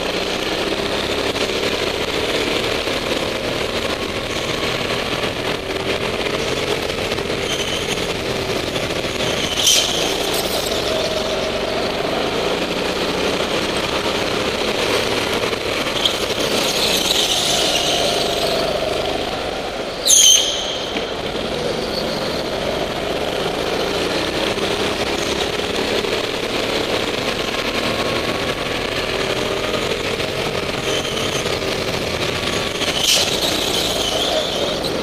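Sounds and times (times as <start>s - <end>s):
go-kart engine revving: 0.0s - 35.0s
loud sharp sounds: 14.2s - 23.3s.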